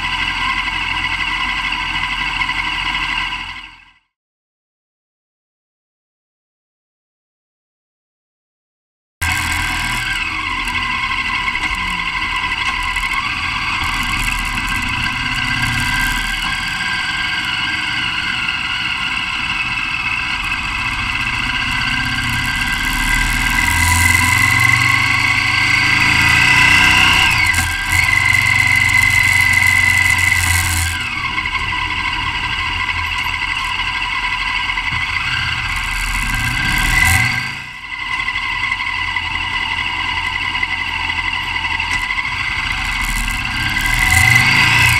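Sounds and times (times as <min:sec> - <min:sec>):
motorcycle engine running: 0:09.2 - 0:44.9.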